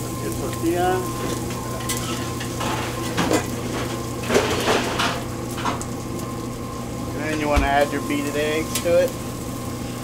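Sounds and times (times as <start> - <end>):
food sizzling on griddle: 0.0 - 10.0
metal spatula scraping griddle: 1.8 - 5.2.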